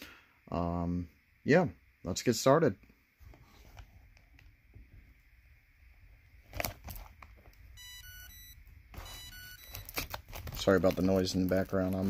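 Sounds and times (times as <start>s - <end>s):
insulin pump alarm beeping: 7.8s - 10.0s.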